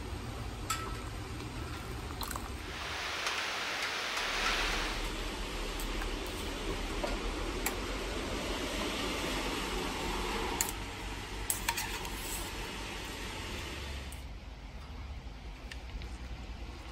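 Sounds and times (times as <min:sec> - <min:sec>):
steady hiss: 0:02.5 - 0:14.2.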